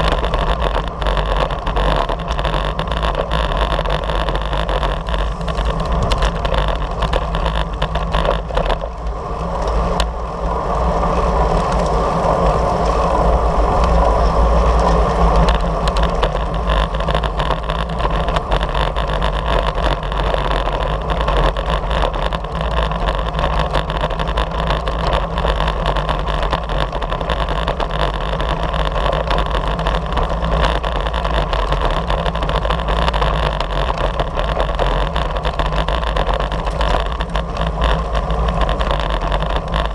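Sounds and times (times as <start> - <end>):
tyre noise on rough pavement: 0.0 - 39.9
wind rush on microphone: 0.0 - 39.9.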